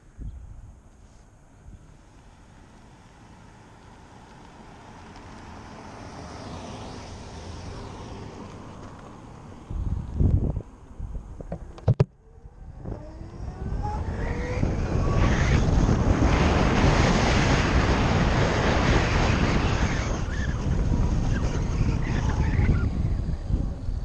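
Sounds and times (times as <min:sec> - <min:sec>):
wind rushing over microphone: 0:05.9 - 0:24.0.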